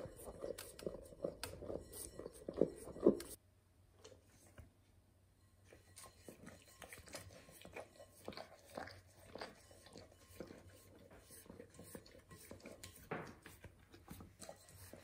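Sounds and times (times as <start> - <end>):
dog licking: 6.1 - 15.0
dog chewing: 6.2 - 15.0.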